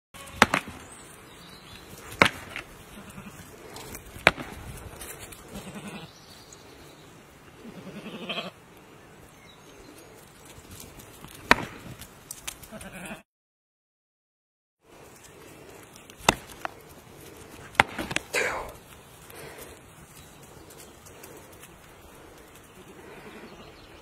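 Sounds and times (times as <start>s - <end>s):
sheep bleating: 2.9s - 3.5s, 5.4s - 6.1s, 7.6s - 8.6s, 12.7s - 13.2s
horns cracking together: 15.7s - 19.8s.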